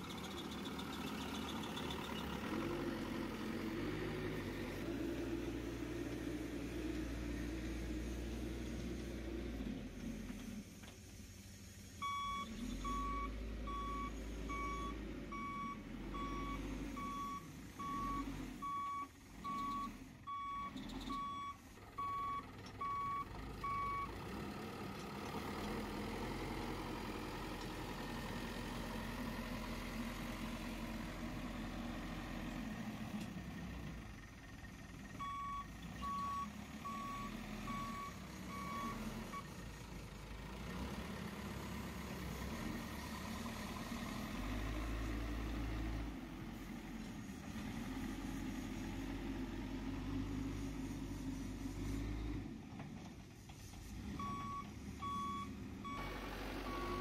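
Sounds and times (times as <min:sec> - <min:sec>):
reversing alarm beeping: 0:12.0 - 0:24.1, 0:35.2 - 0:39.5, 0:54.2 - 0:57.0.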